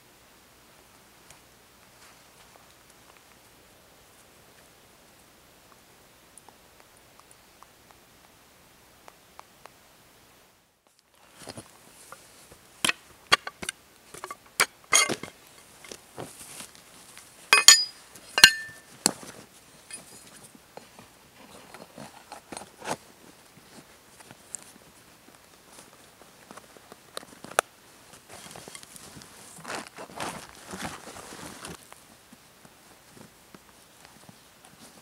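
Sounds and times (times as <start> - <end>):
metal clicks and clinks: 17.5 - 18.8
fabric rustling: 25.7 - 31.9.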